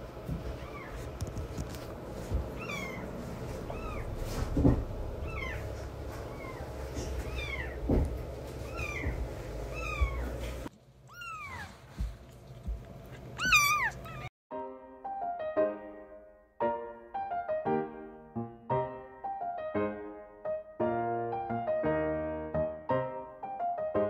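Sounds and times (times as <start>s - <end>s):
piano tune: 1.8s - 10.7s, 14.5s - 24.0s
kittens mewing: 5.2s - 7.8s, 8.6s - 10.4s, 11.1s - 11.8s, 13.2s - 14.3s.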